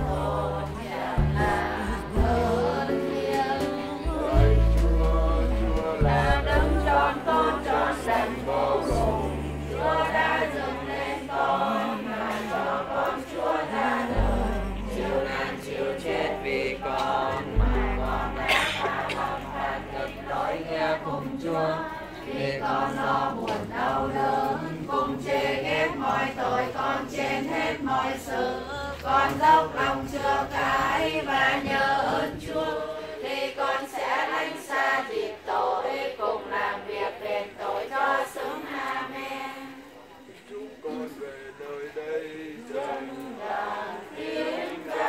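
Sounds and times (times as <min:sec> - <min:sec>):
congregation singing a hymn: 0:00.0 - 0:45.0.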